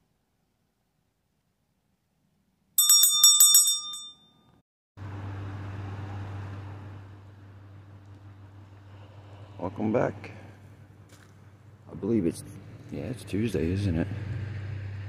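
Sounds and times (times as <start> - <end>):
small bell ringing: 2.8 - 4.6.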